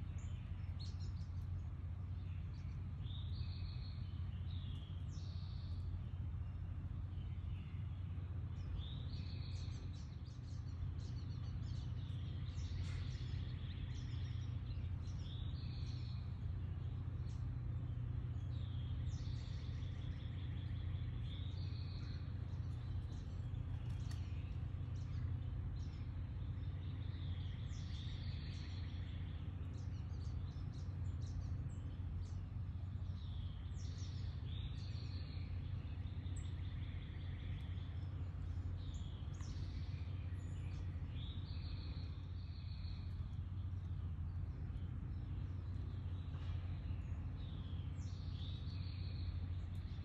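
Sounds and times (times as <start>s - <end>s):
low background rumble: 0.0s - 50.0s
small birds chirping: 0.0s - 50.0s.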